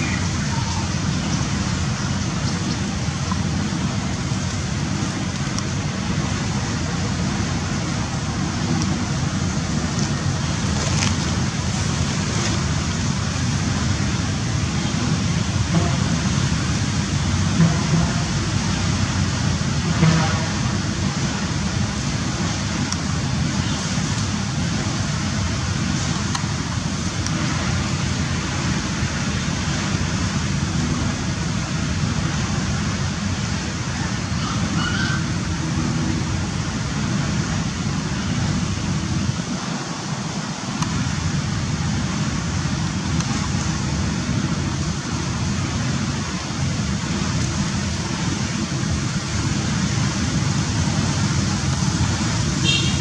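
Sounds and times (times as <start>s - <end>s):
low rumbling background noise: 0.0s - 53.0s.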